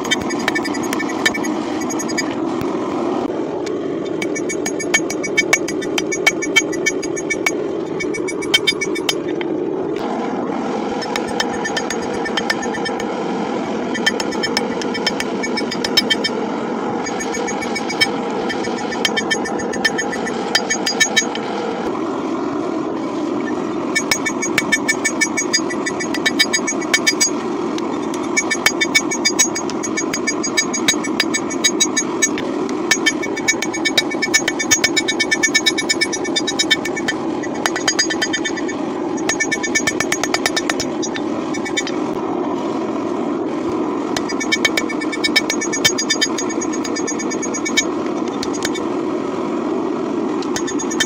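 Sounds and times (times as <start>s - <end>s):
forge burner roaring: 0.0s - 51.0s
hammer striking metal: 11.0s - 13.1s, 14.0s - 16.3s, 17.0s - 21.4s.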